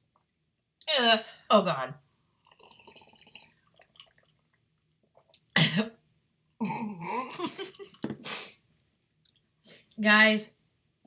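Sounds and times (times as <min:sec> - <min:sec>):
woman coughing: 0:05.6 - 0:06.0.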